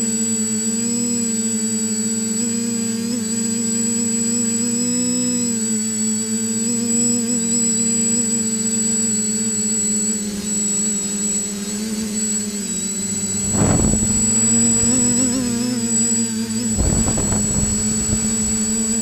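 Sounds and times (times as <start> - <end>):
quadcopter motors humming: 0.0 - 19.0
thin high whine: 11.0 - 19.0
wind on microphone: 12.8 - 19.0.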